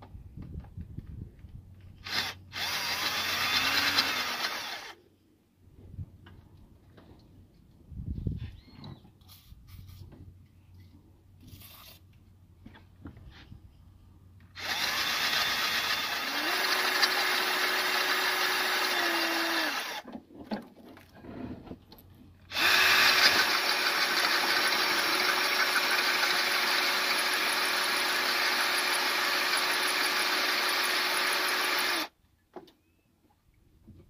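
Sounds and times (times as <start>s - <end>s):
electric drill boring into metal: 2.0s - 5.0s, 14.6s - 20.0s, 22.5s - 32.1s.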